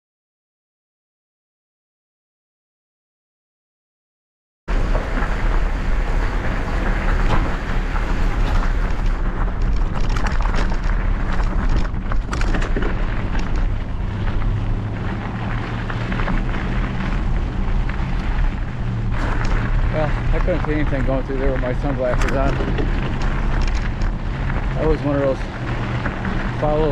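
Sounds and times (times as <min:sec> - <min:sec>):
wind rushing over microphone: 0:04.7 - 0:26.9
bike rattling clicks and knocks: 0:06.6 - 0:26.9
tyre crunch on gravel: 0:07.4 - 0:26.9.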